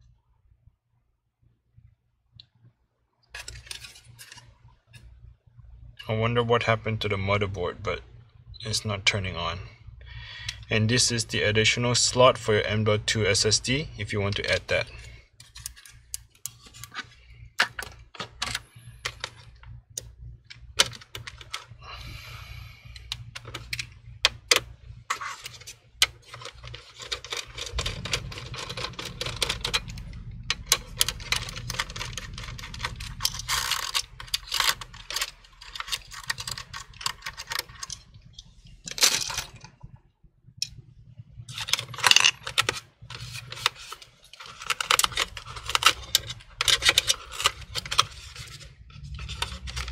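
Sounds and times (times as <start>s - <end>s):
faint low hum: 0.0s - 49.9s
small parts rattling: 3.3s - 5.0s, 13.7s - 39.8s, 41.5s - 49.9s.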